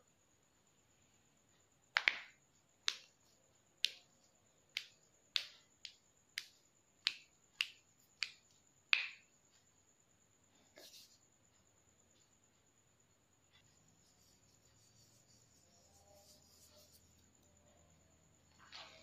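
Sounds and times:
sharp clicking taps: 4.7 - 9.3.

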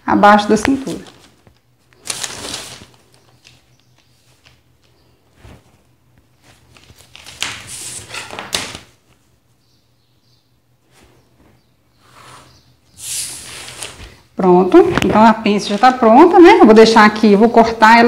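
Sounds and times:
paper rustling: 0.6 - 9.3, 10.9 - 16.1.

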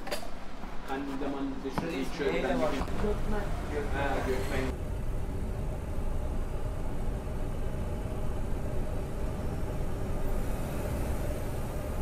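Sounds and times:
bright hiss: 8.7 - 12.0.

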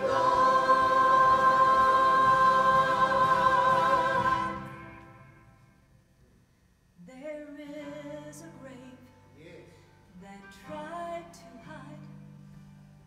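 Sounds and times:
choir holding a chord: 0.0 - 5.4.

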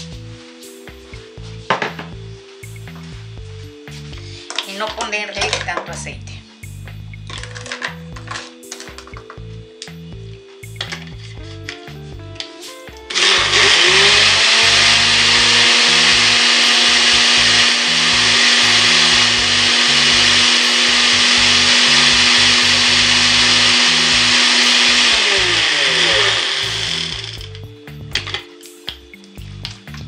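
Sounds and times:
blender motor running: 13.1 - 27.6.

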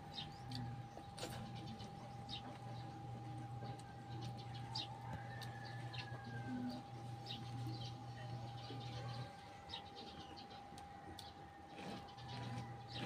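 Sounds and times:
birds calling: 0.0 - 13.0
steady low hum: 0.0 - 13.0.

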